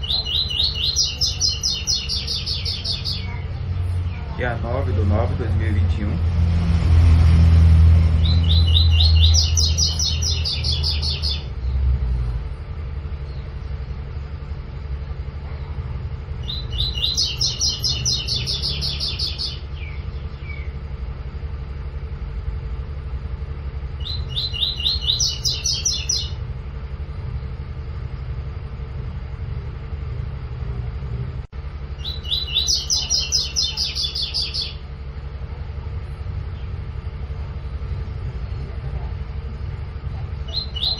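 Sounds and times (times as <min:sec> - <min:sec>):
low rumble: 0:00.0 - 0:40.9
bird singing high repeated notes: 0:16.4 - 0:20.8.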